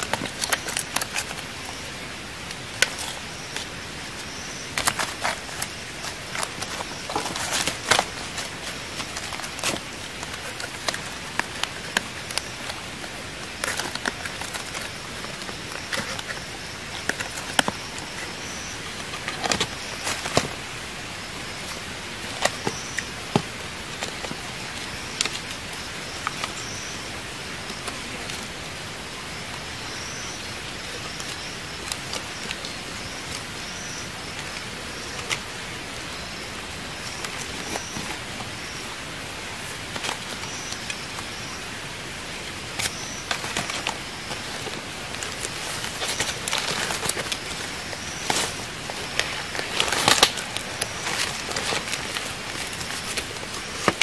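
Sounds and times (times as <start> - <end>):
forest ambience hiss: 0.0 - 54.0
clicks of bamboo pieces handled: 42.4 - 54.0.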